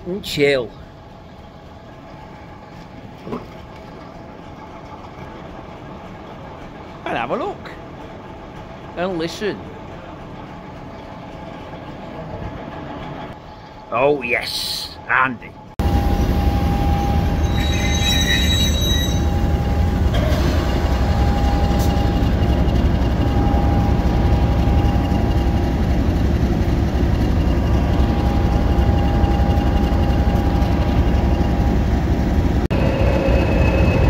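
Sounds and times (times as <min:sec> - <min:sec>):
locomotive engine idling: 0:19.1 - 0:34.0.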